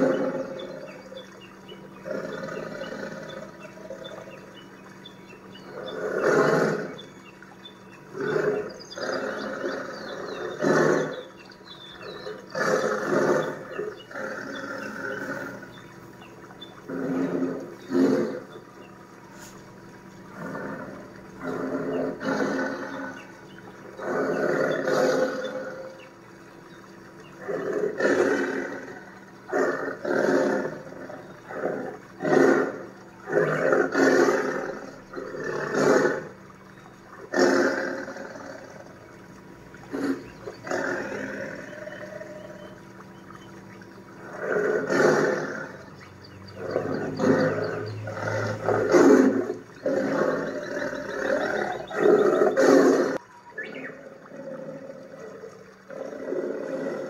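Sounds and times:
tigers roaring and growling: 0.0 - 1.1, 2.0 - 4.3, 5.7 - 7.0, 8.1 - 11.3, 12.0 - 15.8, 16.8 - 18.6, 20.3 - 23.3, 23.9 - 26.0, 27.4 - 36.4, 37.2 - 39.0, 39.9 - 42.6, 44.2 - 45.9, 46.6 - 53.2, 53.9 - 57.0.

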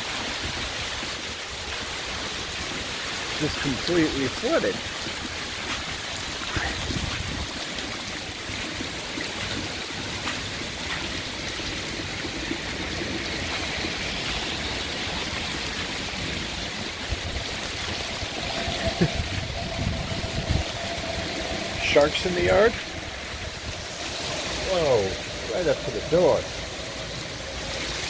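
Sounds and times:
heavy rain splashing into water: 0.0 - 28.0.

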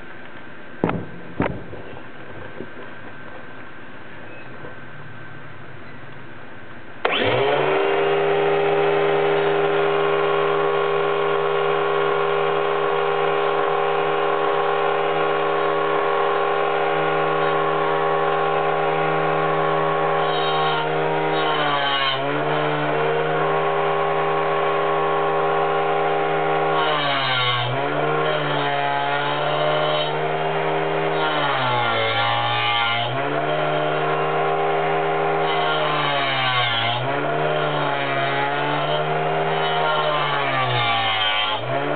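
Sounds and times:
blade rasping into board: 7.0 - 23.6, 26.0 - 41.9
angle grinder whine: 7.0 - 41.9.

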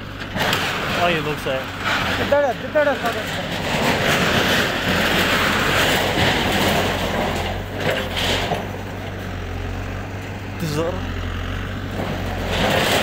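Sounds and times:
diesel engine running: 0.0 - 13.0
debris and sheet metal crunching: 0.1 - 9.3, 11.9 - 13.0.

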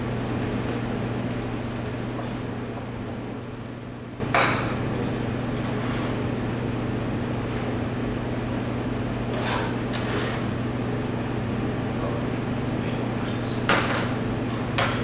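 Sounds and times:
steady low hum: 0.0 - 15.0
knife scraping cutting board: 5.6 - 6.2, 9.2 - 10.6.

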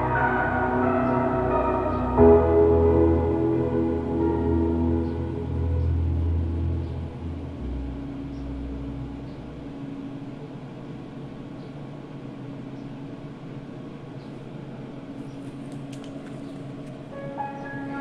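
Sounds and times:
faint low hum: 0.0 - 18.0
faint clicks: 15.3 - 17.0.

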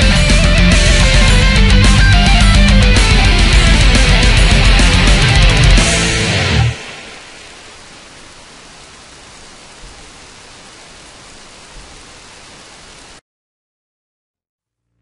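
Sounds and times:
steady hiss: 2.1 - 13.2.

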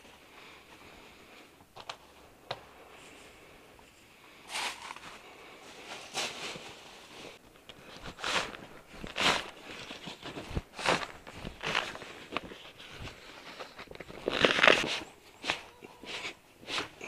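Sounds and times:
awning fabric sliding and rustling: 4.5 - 17.0.

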